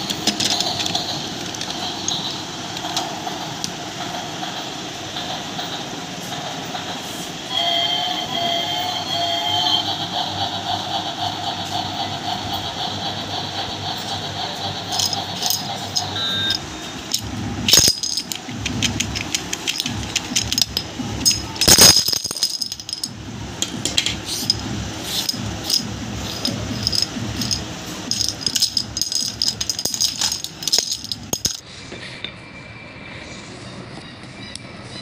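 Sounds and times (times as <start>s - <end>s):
plastic dominoes clattering: 0.0s - 2.2s, 14.9s - 23.1s, 23.9s - 31.6s.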